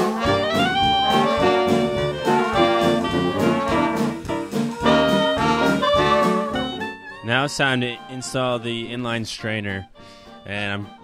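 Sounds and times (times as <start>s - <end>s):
jazz music with brass horns: 0.0s - 11.0s.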